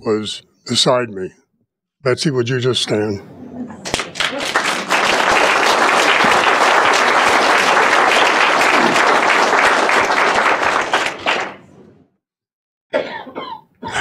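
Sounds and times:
audience applauding: 3.8s - 11.8s.

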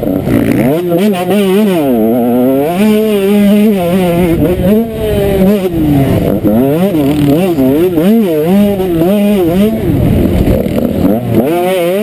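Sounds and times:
motocross bike engine revving: 0.0s - 12.0s.

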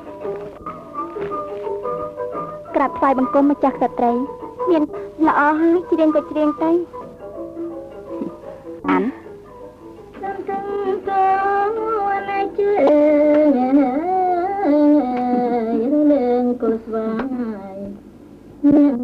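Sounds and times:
woman singing slow song: 10.2s - 18.0s.

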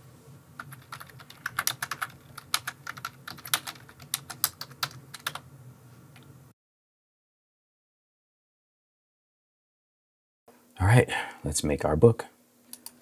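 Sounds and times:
keyboard typing: 0.6s - 5.4s.

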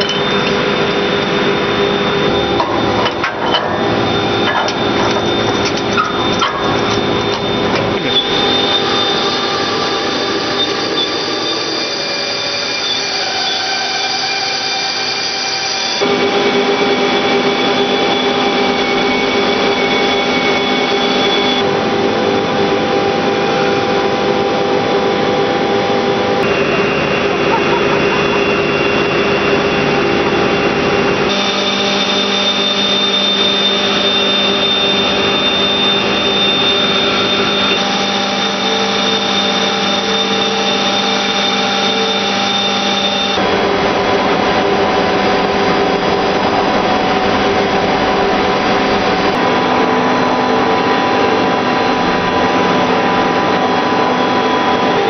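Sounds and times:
industrial machinery hiss and hum: 0.0s - 55.0s.

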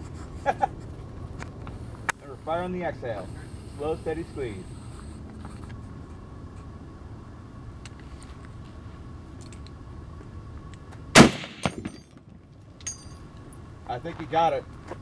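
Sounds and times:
low background noise: 0.0s - 15.0s
rifle shot: 11.1s - 12.0s.

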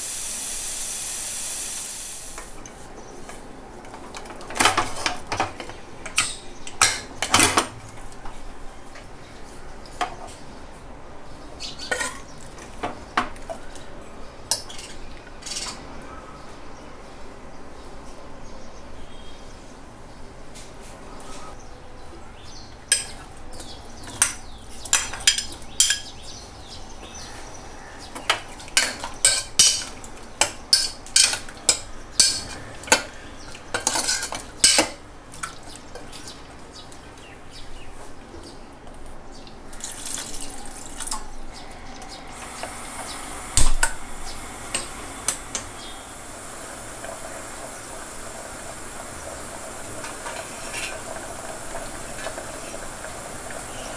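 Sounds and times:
soft hiss from pot: 0.0s - 2.6s, 42.2s - 53.9s
spoon clinking on metal pot: 30.7s - 32.6s.

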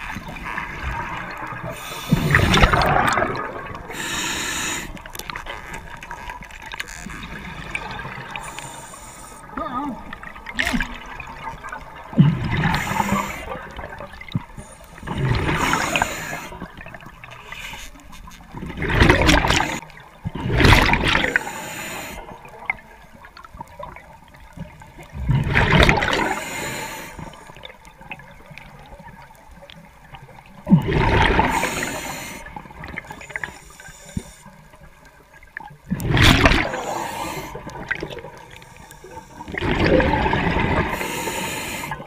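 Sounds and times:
bubbling regulator exhaust underwater: 0.0s - 5.2s.

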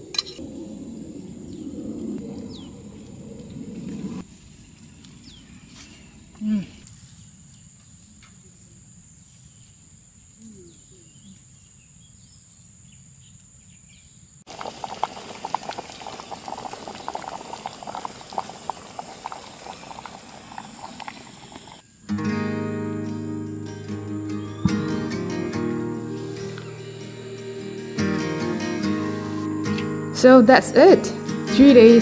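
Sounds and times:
curry simmering and bubbling: 14.5s - 21.8s
acoustic guitar music: 22.0s - 32.0s
steady high-pitched whine: 24.7s - 31.7s.

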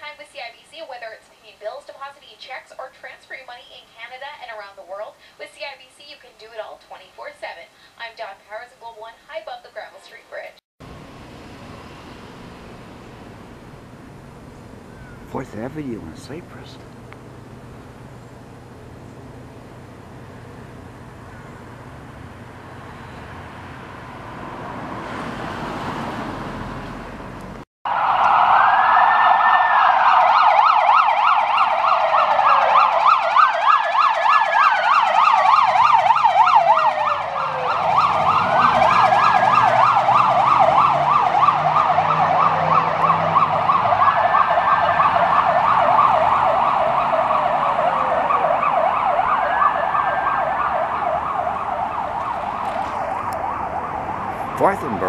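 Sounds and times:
street traffic: 10.8s - 29.2s, 34.6s - 55.0s
vehicle passing: 22.3s - 27.6s, 36.5s - 55.0s
police siren yelp and wail: 27.9s - 55.0s.

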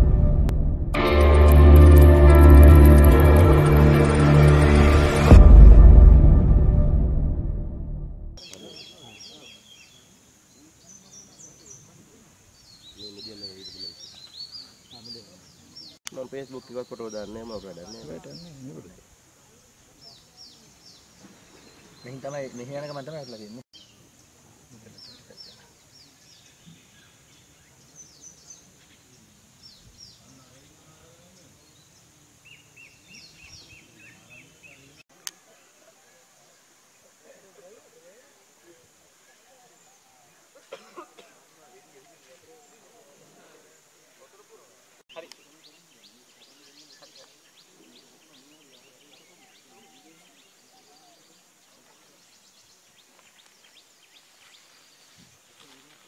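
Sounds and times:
high insect hiss: 8.4s - 13.3s, 16.1s - 34.6s
faint birdsong chirps: 8.4s - 44.5s, 45.1s - 56.0s
faint distant voices: 8.4s - 56.0s.

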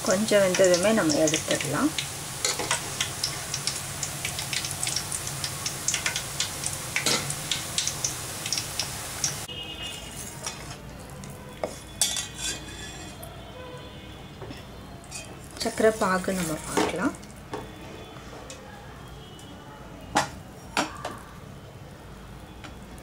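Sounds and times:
batter sizzling in hot oil: 0.0s - 13.3s, 15.0s - 17.8s.

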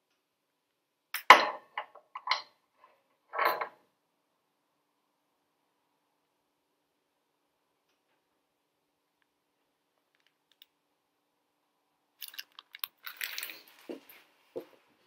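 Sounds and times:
plastic packaging crinkling: 12.2s - 14.0s.

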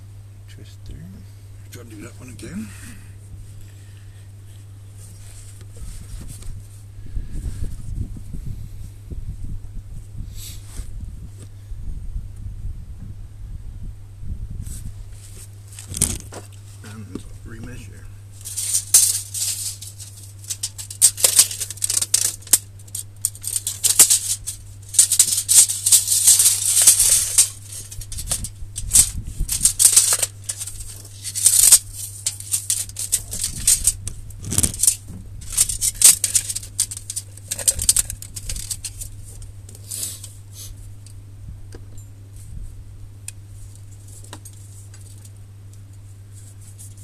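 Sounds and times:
steady low hum: 0.0s - 47.0s
tools rattling and scraping: 15.7s - 40.3s.

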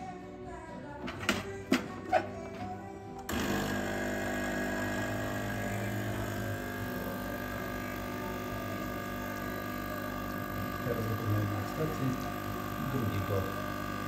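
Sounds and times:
espresso machine pump running: 3.3s - 14.0s.

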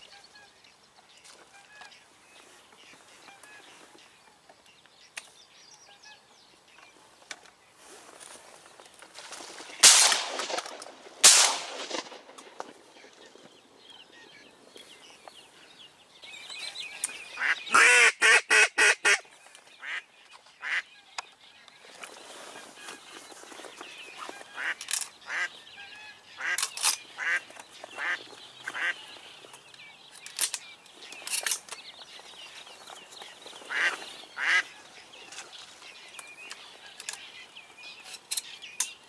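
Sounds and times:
shotgun shots: 9.8s - 12.5s
duck quacking: 17.4s - 19.2s, 20.6s - 20.9s, 28.0s - 29.0s, 33.7s - 34.7s.

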